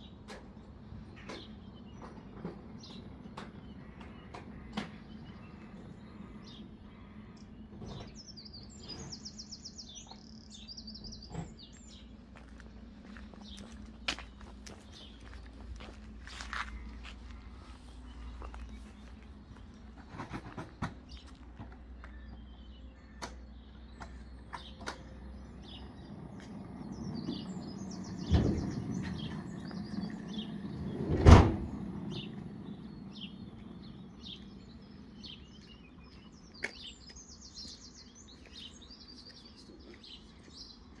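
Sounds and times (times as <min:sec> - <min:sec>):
birds chirping: 0:00.0 - 0:41.0
sliding gate rolling: 0:24.6 - 0:35.4.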